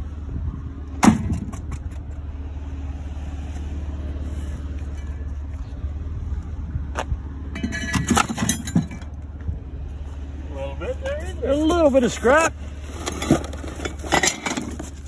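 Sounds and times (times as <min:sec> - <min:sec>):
vehicle engine idling: 0:00.0 - 0:15.0
scrap metal clanking: 0:07.5 - 0:09.2, 0:12.8 - 0:15.0.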